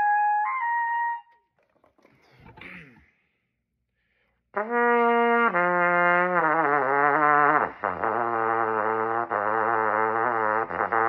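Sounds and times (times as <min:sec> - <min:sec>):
trumpet playing sustained notes: 0:00.0 - 0:01.4.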